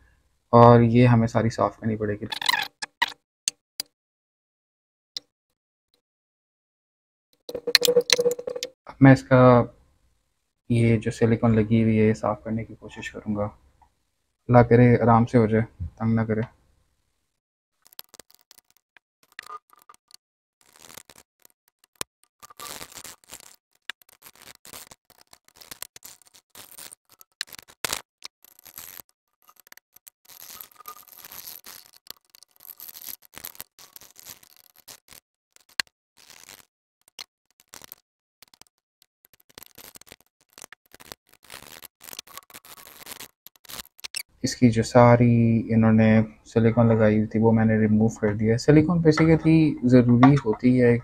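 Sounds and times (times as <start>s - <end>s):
sealant scraping: 17.8s - 44.3s
small clicks and ticks: 17.8s - 44.3s.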